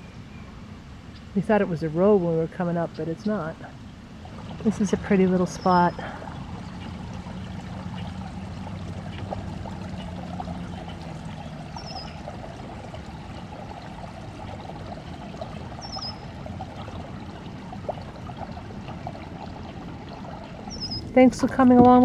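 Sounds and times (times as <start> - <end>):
water trickling over rocks: 2.4 - 22.0
high bird chirps: 10.7 - 12.2, 15.8 - 16.4, 20.7 - 21.1.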